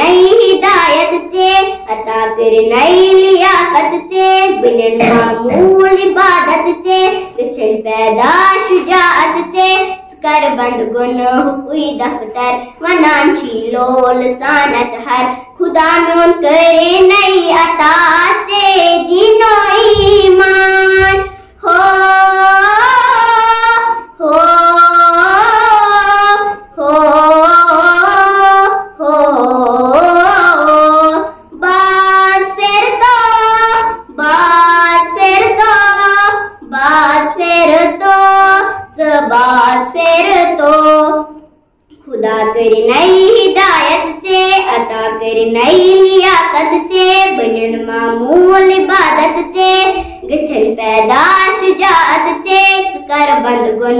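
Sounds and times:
girl singing solo: 0.0 - 41.3
singer breaths: 21.3 - 21.6, 50.0 - 50.3.

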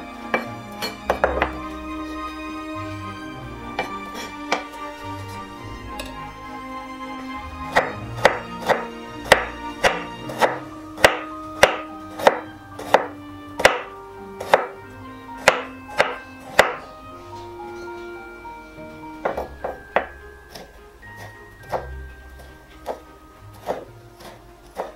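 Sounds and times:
knife chopping on wooden board: 7.7 - 14.8, 15.4 - 16.8, 19.3 - 21.9, 22.8 - 24.9.

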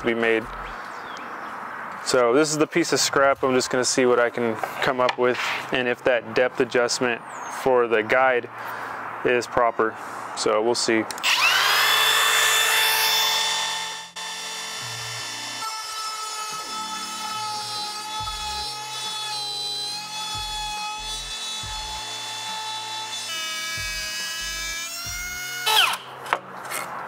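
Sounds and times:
router high whine: 11.2 - 18.8, 19.4 - 26.1
background music with bass line: 20.3 - 22.0, 23.8 - 25.4.

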